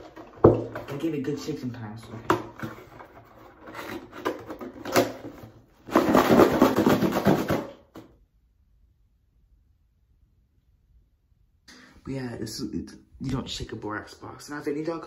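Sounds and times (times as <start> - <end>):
box knocks and rustles: 0.0 - 1.1, 2.2 - 8.1
powder rattling in cardboard box: 5.9 - 8.0.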